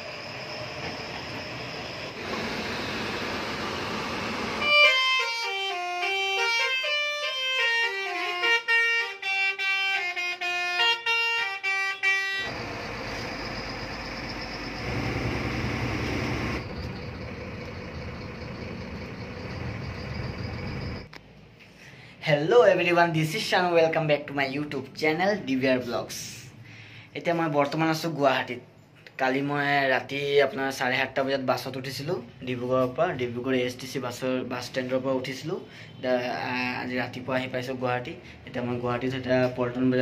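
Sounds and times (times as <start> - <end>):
bus engine and road noise: 0.8 - 4.6, 12.5 - 21.1
melodic musical horn tune: 4.6 - 12.5.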